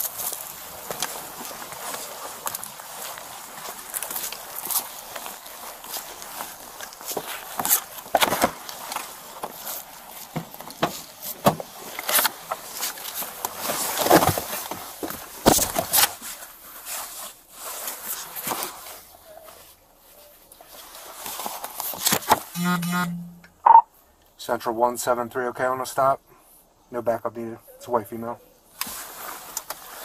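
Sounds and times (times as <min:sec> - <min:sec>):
clothing rustling against camera: 0:00.0 - 0:22.6, 0:28.8 - 0:30.0.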